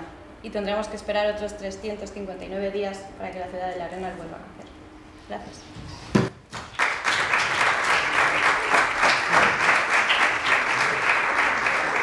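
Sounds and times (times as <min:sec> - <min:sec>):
audience applauding: 0:06.6 - 0:12.0.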